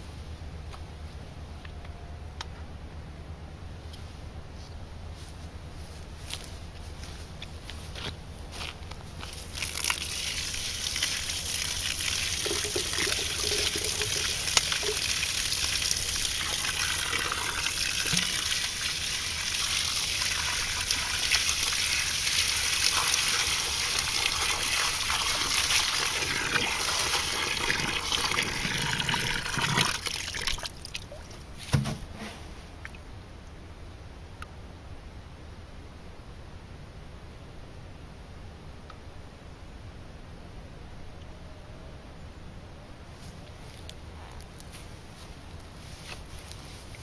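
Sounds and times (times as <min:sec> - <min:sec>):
water pouring into a hole: 0:09.6 - 0:31.2.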